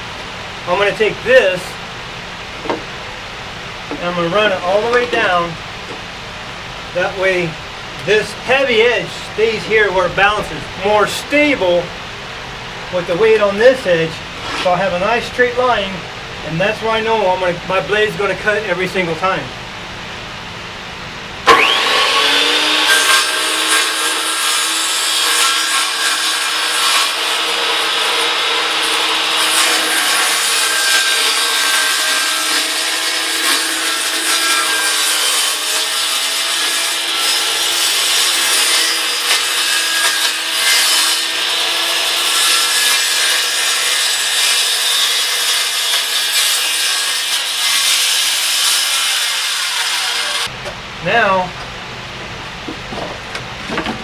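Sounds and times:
circular saw cutting plywood: 21.5s - 50.5s.

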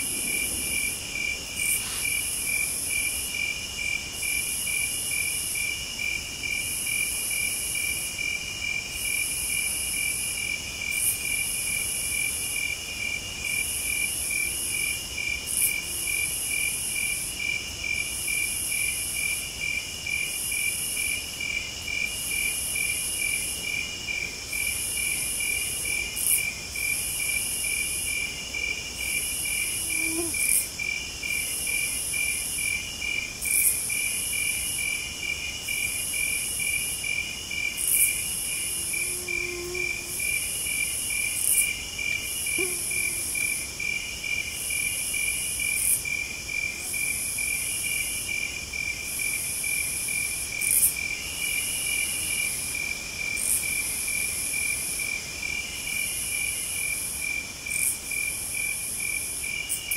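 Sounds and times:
continuous high insect trill: 0.0s - 59.9s
crickets chirping: 0.0s - 59.9s
high insect buzzing: 29.2s - 30.7s, 37.9s - 41.7s, 42.3s - 43.7s.

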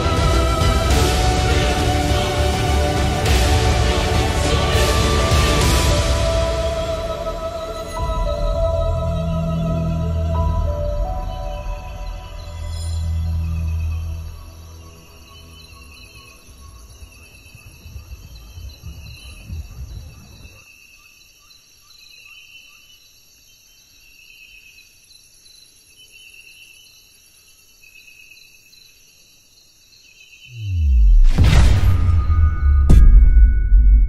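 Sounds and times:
low rumble: 0.0s - 20.6s, 30.6s - 34.0s
insects chirping: 6.3s - 31.1s
whoosh into heavy low impact: 16.9s - 20.6s, 30.6s - 34.0s.

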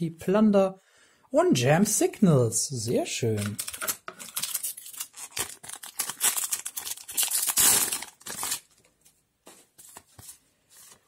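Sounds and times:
foil pack crinkling: 3.4s - 8.9s.

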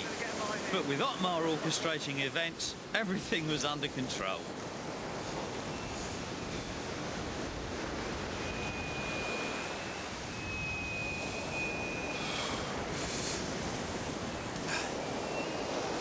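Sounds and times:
surf: 0.0s - 16.0s
wind: 0.0s - 16.0s
fishing line whistling: 8.4s - 13.5s, 14.9s - 16.0s.

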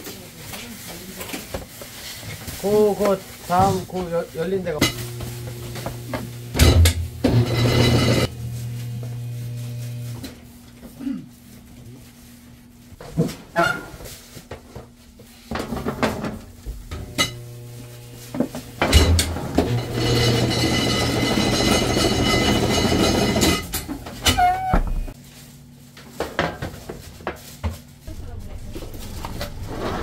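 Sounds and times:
metal baking trays clanking: 6.6s - 8.3s, 18.8s - 24.4s
long loud metal scrape: 7.3s - 8.3s, 29.5s - 30.0s
oven door squealing shut: 24.2s - 25.2s.

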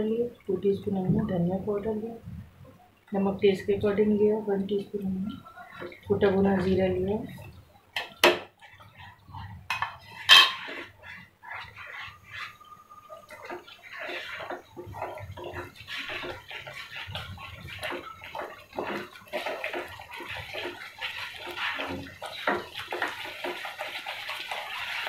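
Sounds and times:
soft sizzle: 0.0s - 25.0s
spatula scraping metal pan: 8.6s - 25.0s.

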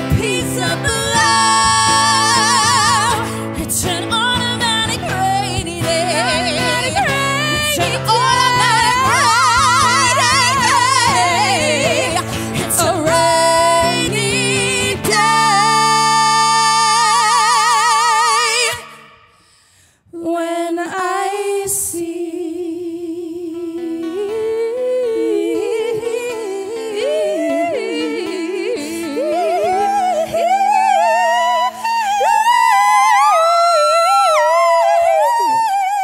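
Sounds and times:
women singing in harmony: 0.0s - 19.3s, 20.1s - 36.0s
acoustic guitar: 0.0s - 36.0s.

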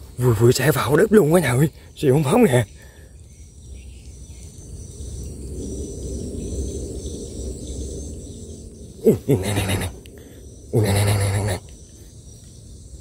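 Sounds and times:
insects chirping: 0.0s - 13.0s
low rumbling noise: 2.6s - 13.0s.

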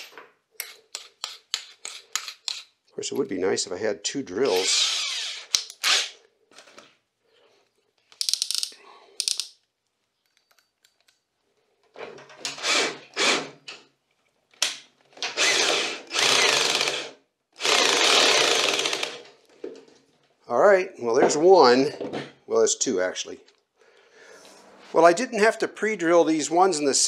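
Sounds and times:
cordless drill driving screws: 4.5s - 6.2s, 12.5s - 13.6s, 15.3s - 19.2s.

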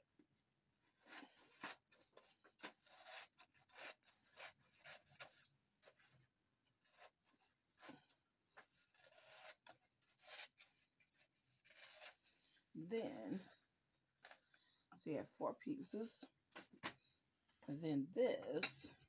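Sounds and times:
paper rustling and scraping: 0.9s - 12.4s.

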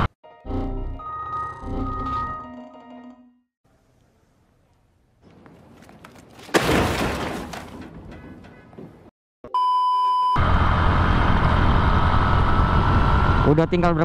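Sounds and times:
computer smashing in metal dumpster: 6.4s - 7.9s
test-tone beep: 9.5s - 10.4s
motorcycle riding: 10.4s - 14.0s.

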